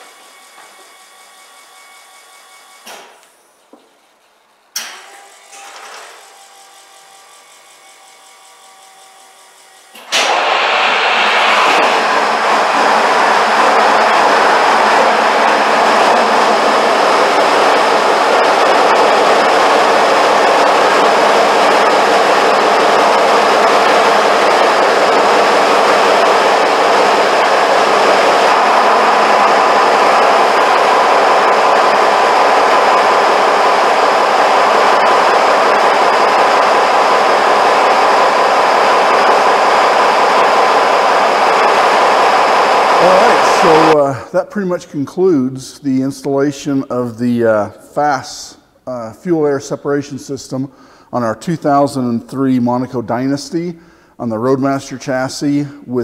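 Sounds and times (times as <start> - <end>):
electric fuel pump hum: 9.9 - 44.0
diesel engine starting and running: 10.0 - 44.2.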